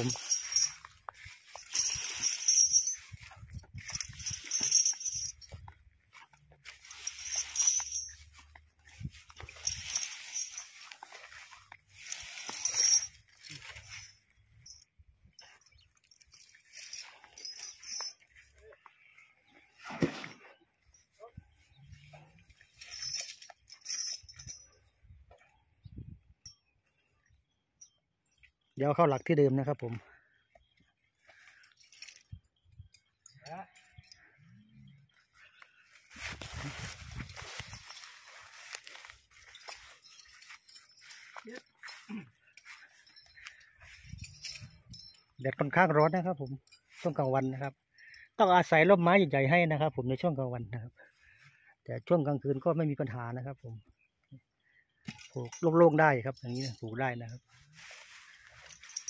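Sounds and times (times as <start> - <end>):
metal chain clinking and rattling: 0.0 - 19.1, 20.2 - 26.7, 31.2 - 48.7, 55.0 - 59.0
jingling rustle of dry stubble: 0.0 - 27.1, 29.9 - 49.4, 51.0 - 51.8, 54.0 - 59.0.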